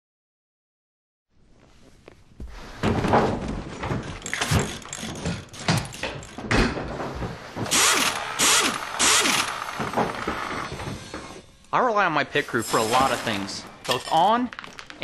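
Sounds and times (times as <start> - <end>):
knocks clunks and thuds: 2.7 - 7.9, 9.6 - 11.4.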